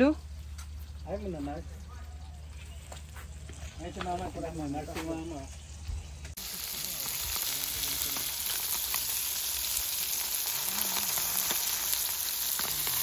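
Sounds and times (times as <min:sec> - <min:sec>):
fish sizzling in hot oil: 0:06.3 - 0:13.0.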